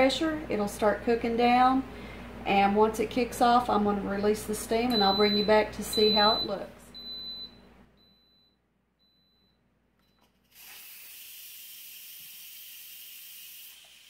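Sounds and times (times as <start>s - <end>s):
pressure cooker steam hissing: 10.5s - 14.0s.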